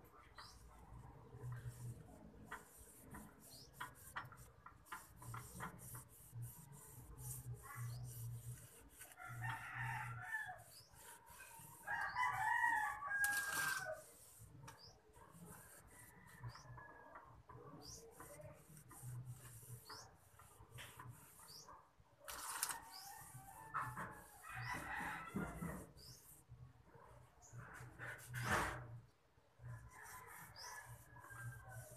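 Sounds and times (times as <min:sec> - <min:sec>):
hands rustling potting soil: 0:11.9 - 0:14.0, 0:22.2 - 0:23.7
rooster crowing: 0:11.9 - 0:14.0.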